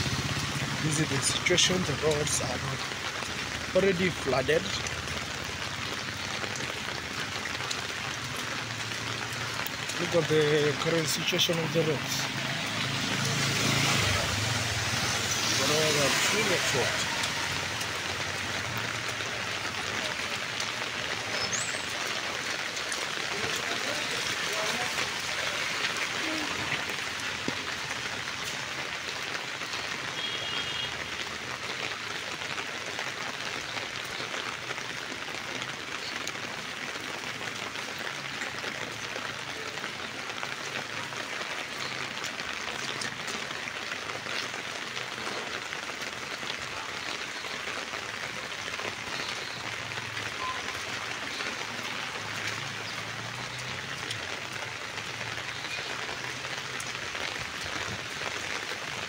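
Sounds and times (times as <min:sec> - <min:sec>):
raindrop ticks: 0:00.0 - 0:59.0
steady rain hiss: 0:00.0 - 0:59.0.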